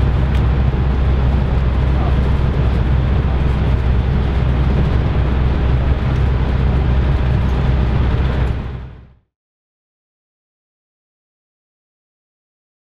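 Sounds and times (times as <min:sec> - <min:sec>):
road and engine rumble in a cabin: 0:00.0 - 0:09.3.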